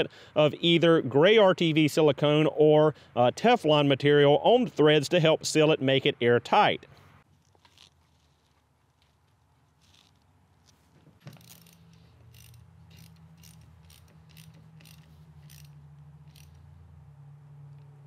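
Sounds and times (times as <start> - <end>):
socket ratchet clicking: 11.3 - 16.6.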